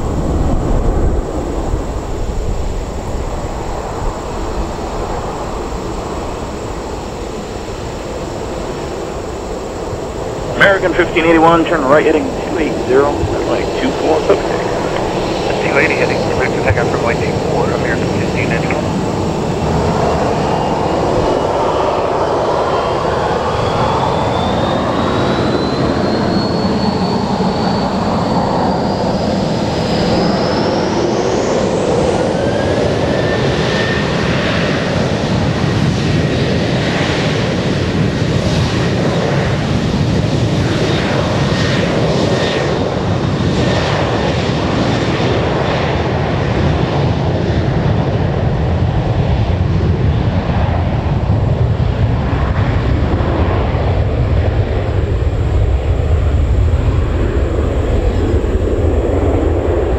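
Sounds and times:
jet engines spooling up: 0.0 - 59.9
lower jet whine: 0.0 - 59.9.

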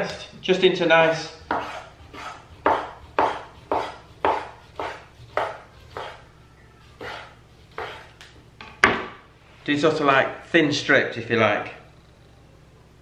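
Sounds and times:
knife slicing raw meat: 1.5 - 8.2.

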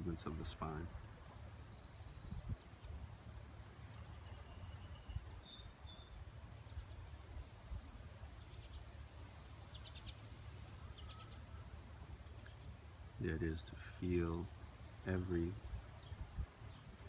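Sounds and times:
faint birdsong: 0.0 - 17.0
steady low rumble: 11.4 - 17.0.

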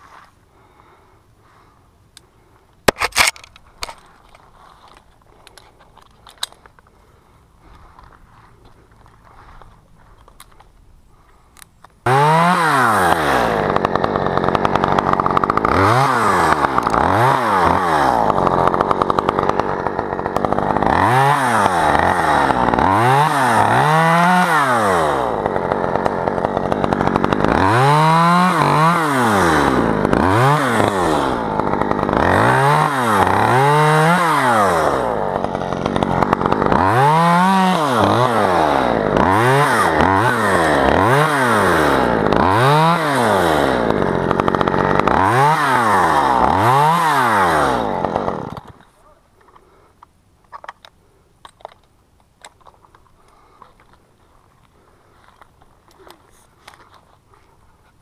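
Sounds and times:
chainsaw revving: 12.0 - 48.9.

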